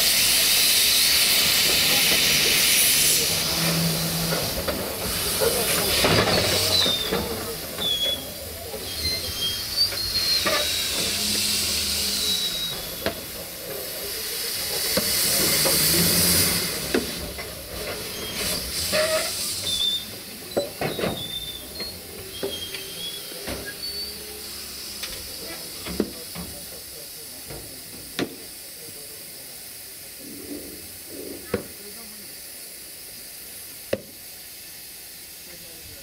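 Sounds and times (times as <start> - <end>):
steam locomotive hissing: 0.0 - 36.0
short high squeaks: 5.7 - 13.2, 18.0 - 24.5.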